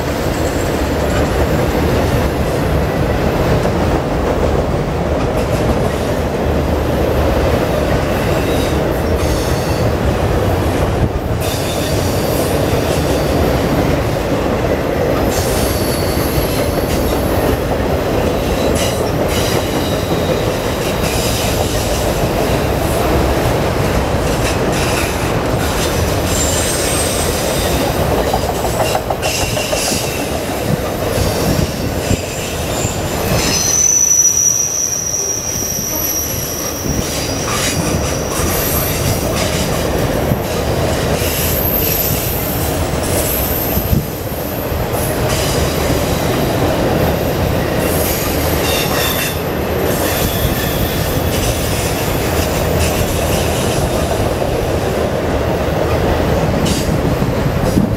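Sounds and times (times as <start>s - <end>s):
rumble of train wheels on rail: 0.0s - 57.9s
train cars clanking: 0.0s - 57.9s
high thin wheel squeal: 32.1s - 39.0s.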